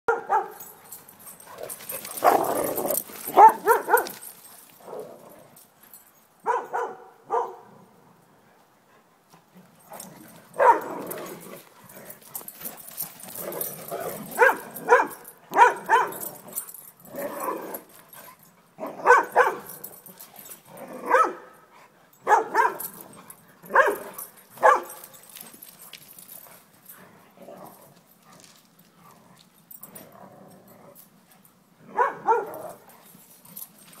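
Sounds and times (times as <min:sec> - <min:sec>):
dogs barking: 0:00.1 - 0:00.8, 0:01.4 - 0:04.3, 0:06.5 - 0:07.7, 0:10.5 - 0:11.2, 0:14.2 - 0:16.4, 0:18.9 - 0:20.0, 0:21.0 - 0:21.6, 0:22.2 - 0:23.0, 0:23.6 - 0:25.2, 0:31.9 - 0:32.8.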